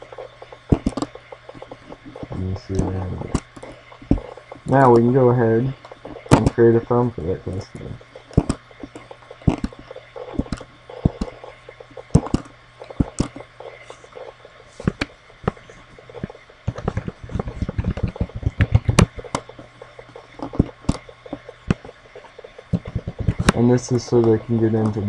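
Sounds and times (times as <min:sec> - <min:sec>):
faint low hum: 0:00.0 - 0:25.0
keyboard typing: 0:07.6 - 0:14.3, 0:14.9 - 0:25.0.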